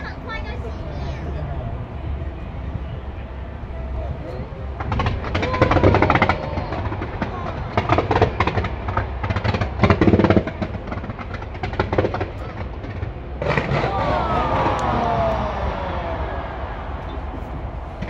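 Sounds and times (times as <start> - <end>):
low rumble: 0.0 - 18.0
fireworks popping and crackling: 4.7 - 15.4.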